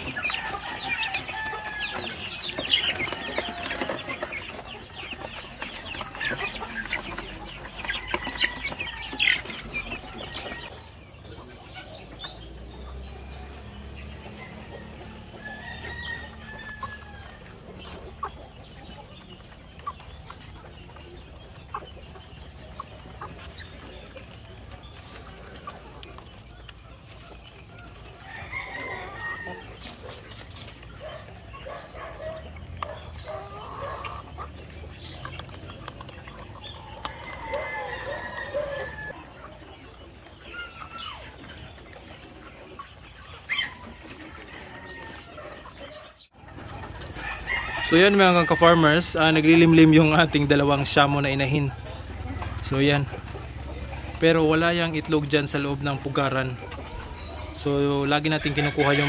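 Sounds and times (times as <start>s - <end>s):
wings flapping and scuffling: 0.0s - 39.2s
chickens clucking: 0.0s - 59.0s.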